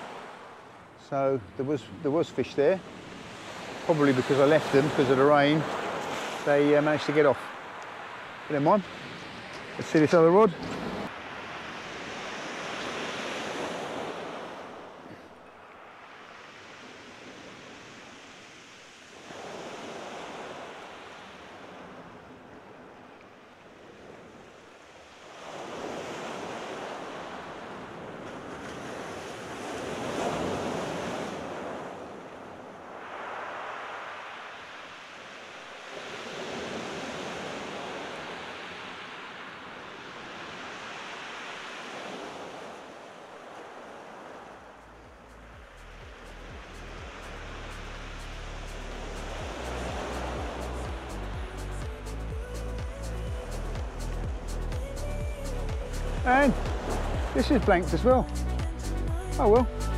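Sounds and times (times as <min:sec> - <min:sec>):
wind: 0:00.0 - 0:59.9.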